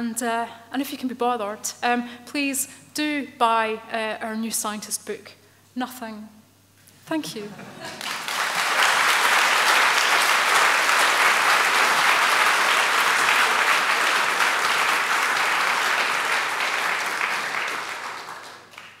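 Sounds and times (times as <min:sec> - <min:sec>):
audience applauding: 0:07.9 - 0:19.0.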